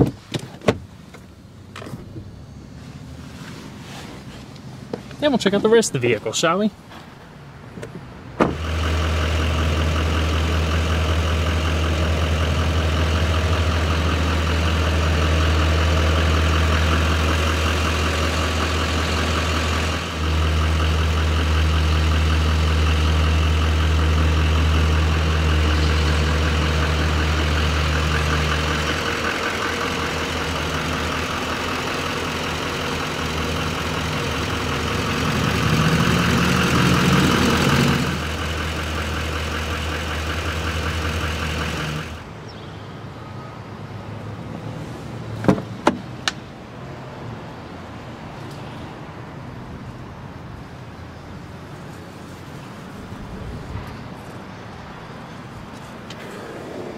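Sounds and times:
diesel truck engine idling: 3.8 - 44.3.

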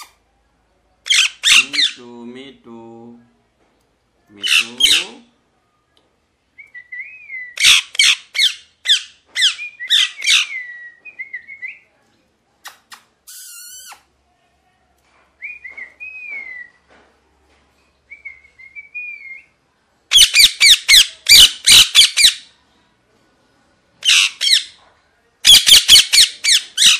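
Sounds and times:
parakeet squawking: 1.1 - 2.0, 4.4 - 5.2, 7.6 - 10.7, 20.1 - 22.5, 24.0 - 24.8, 25.4 - 26.9
rapid harsh parakeet screeches: 25.5 - 26.9.

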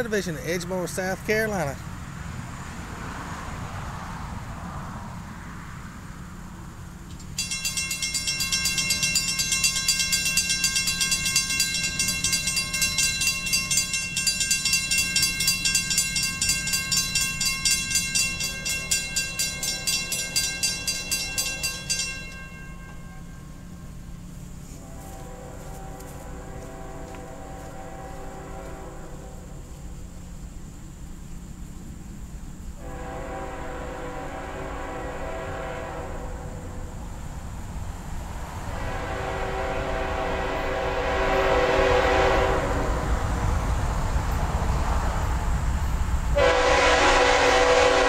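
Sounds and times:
railroad crossing bell ringing: 7.2 - 24.4, 45.8 - 48.0.

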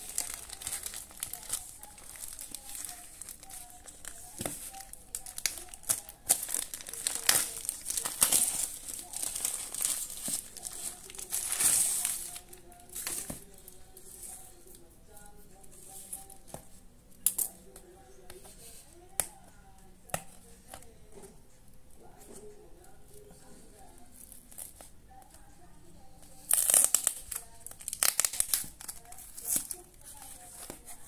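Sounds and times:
packing tape and cardboard crinkling: 0.0 - 14.6, 26.3 - 31.0
faint music: 0.0 - 31.0.

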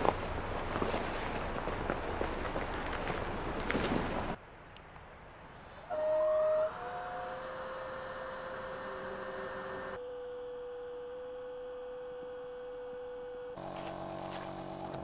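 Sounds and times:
electric air pump hum: 5.8 - 15.0.

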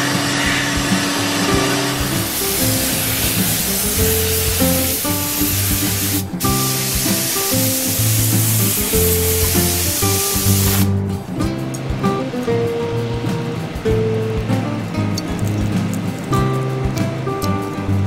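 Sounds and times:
background music: 0.0 - 18.0
spray gun hissing: 2.0 - 11.0.

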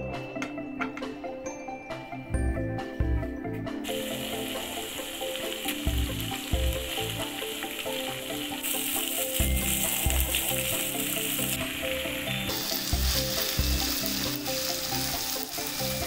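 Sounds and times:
background music: 0.0 - 16.0
prawns frying in hot oil: 3.8 - 16.0.

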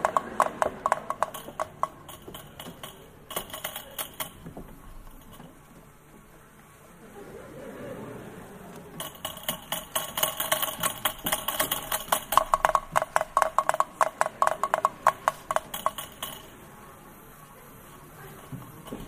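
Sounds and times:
small clinking strikes: 0.0 - 5.6, 9.0 - 16.6.

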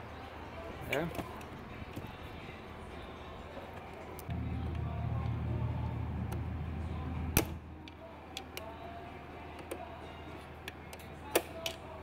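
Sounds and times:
low steady hum: 4.2 - 11.2.

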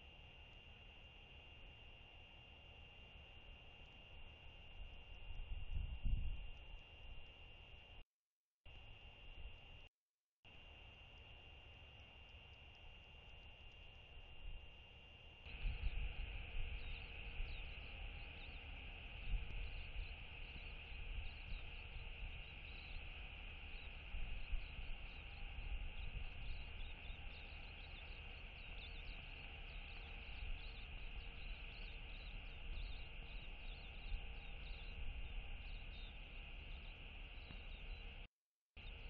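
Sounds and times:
wind on microphone: 5.3 - 6.6, 15.5 - 36.2
steady high chirring: 10.5 - 39.0.

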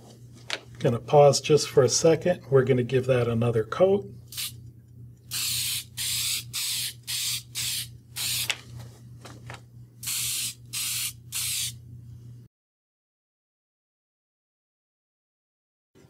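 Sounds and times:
aerosol can spraying: 4.3 - 4.6, 5.3 - 8.6, 10.0 - 11.8.

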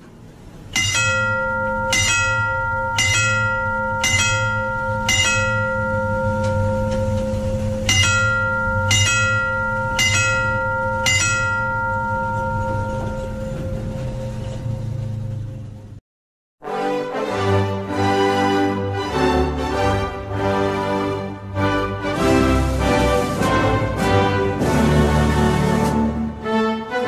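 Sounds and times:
steady low hum: 0.0 - 16.0
level crossing gong bell ringing: 0.6 - 15.3.

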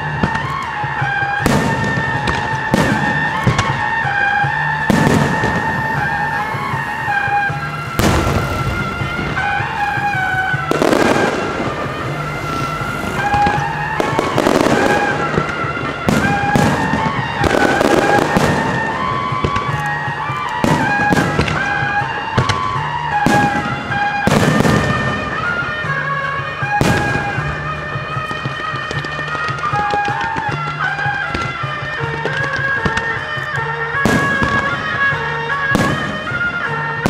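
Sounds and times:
firework bangs: 0.0 - 37.0
firework crackling: 0.0 - 37.0
melodic music: 0.0 - 37.0.

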